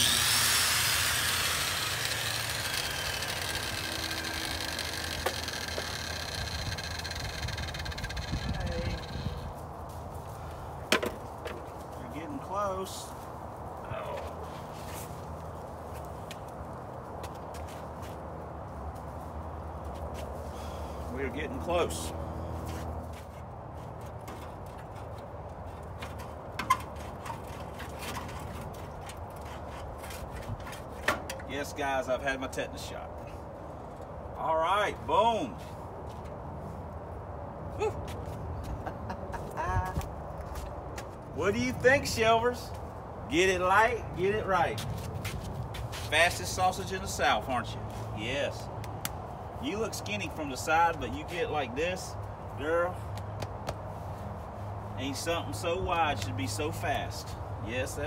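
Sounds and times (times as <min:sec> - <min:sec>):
angle grinder spinning down: 0:00.0 - 0:09.3.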